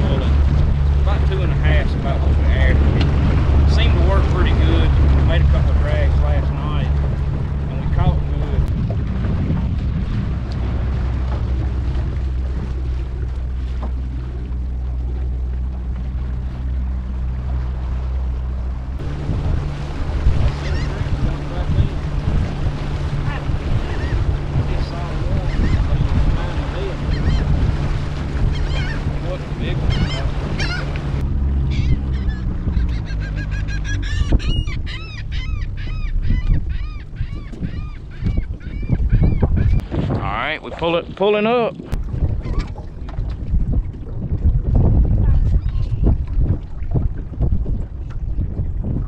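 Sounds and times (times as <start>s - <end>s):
outboard motor droning: 0.0s - 49.0s
birds calling: 16.5s - 39.8s.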